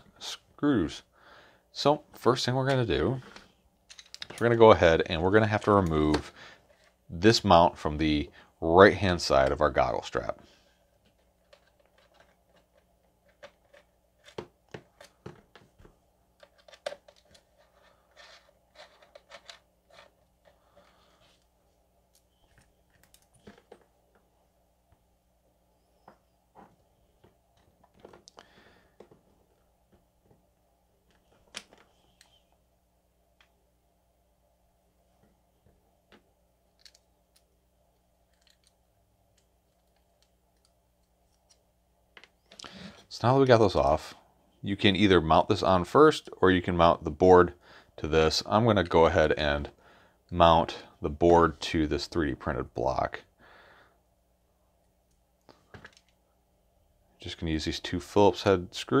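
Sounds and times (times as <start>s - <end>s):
faint clicks of small parts: 2.6s - 4.6s, 11.0s - 21.5s, 22.1s - 24.2s, 36.1s - 43.6s, 54.8s - 56.2s.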